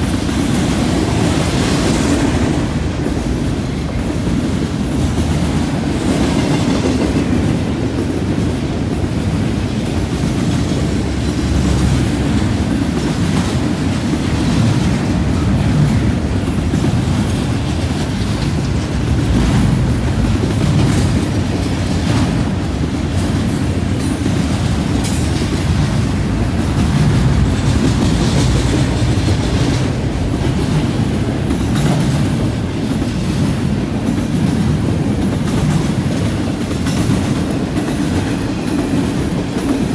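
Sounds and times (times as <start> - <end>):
freight train rolling past: 0.0 - 39.9.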